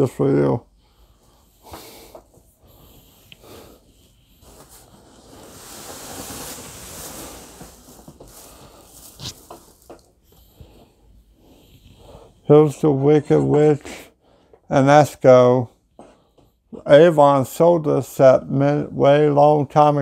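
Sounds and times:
rustling in cardboard box: 0:04.4 - 0:10.1.

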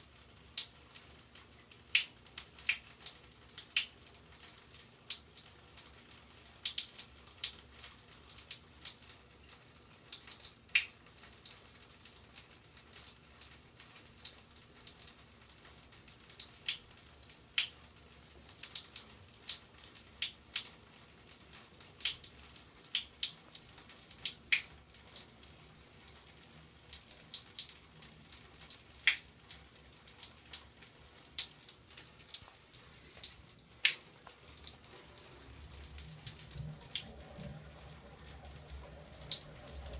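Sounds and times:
water dripping: 0:00.0 - 0:39.9
hiss of running water: 0:32.2 - 0:39.9.

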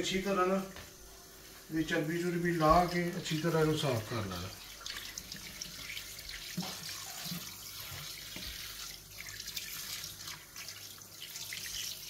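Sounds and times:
tap water splashing into sink: 0:02.6 - 0:12.0.

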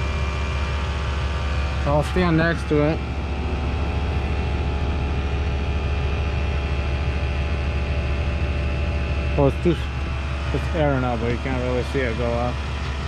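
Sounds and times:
air compressor running: 0:00.0 - 0:13.0.

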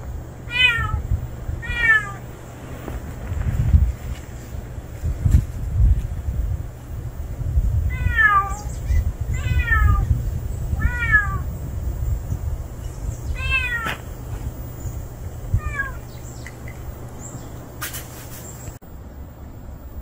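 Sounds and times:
cat meowing: 0:00.5 - 0:01.0, 0:01.6 - 0:02.3, 0:07.9 - 0:10.1, 0:10.8 - 0:11.5, 0:13.3 - 0:14.0, 0:15.6 - 0:16.0.

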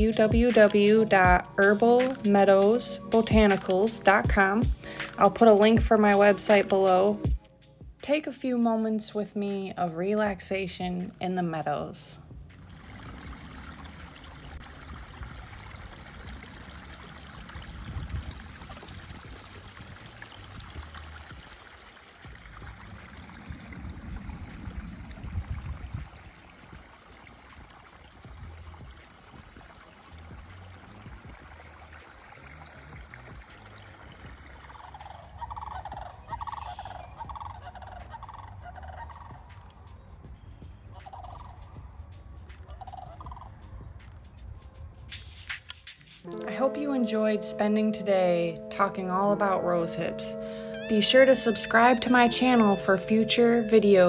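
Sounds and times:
wind rumble on microphone: 0:12.3 - 0:45.5
bird gobbling calls: 0:34.8 - 0:39.7, 0:40.9 - 0:41.7, 0:42.7 - 0:43.5.

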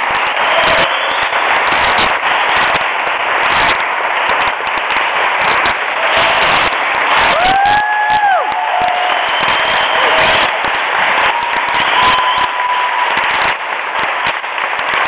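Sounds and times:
group applause: 0:00.0 - 0:15.0
person cheering woo: 0:06.0 - 0:13.4.

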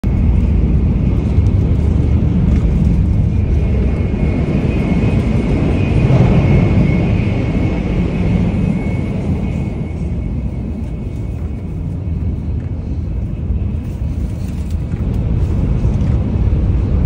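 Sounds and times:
train deep rumble: 0:00.0 - 0:17.0
thin high whine: 0:00.1 - 0:16.0.

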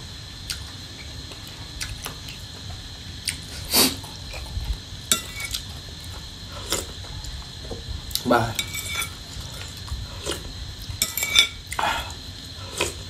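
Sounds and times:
person chewing: 0:11.6 - 0:13.0.

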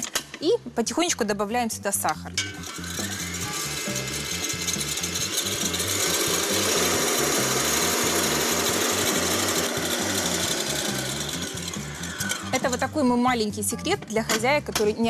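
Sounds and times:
stand mixer whirring: 0:02.6 - 0:12.8.

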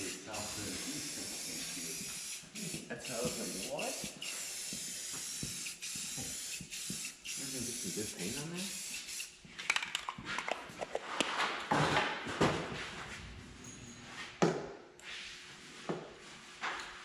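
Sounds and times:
aerosol spray can hissing: 0:00.0 - 0:09.4.

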